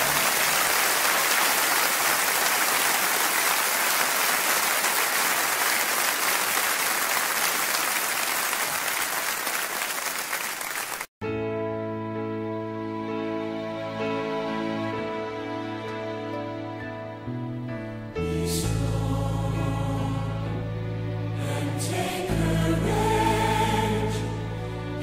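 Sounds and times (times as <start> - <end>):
group applauding: 0.0 - 11.1
soft music with held notes: 11.2 - 25.0.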